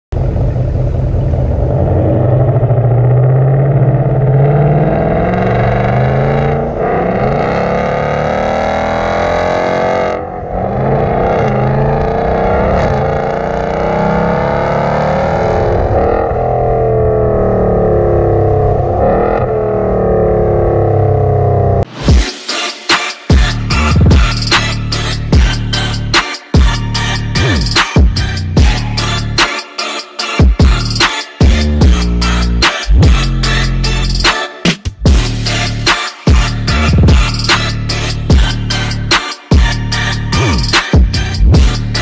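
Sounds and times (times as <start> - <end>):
car engine accelerating hard: 0.2 - 21.9.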